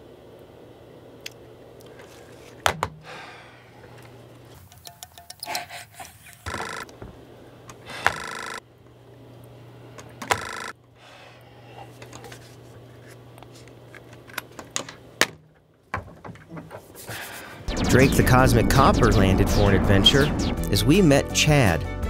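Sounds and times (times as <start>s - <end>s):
desk telephone ringing: 8.1s - 8.6s, 10.3s - 10.8s
low hum: 17.7s - 21.3s.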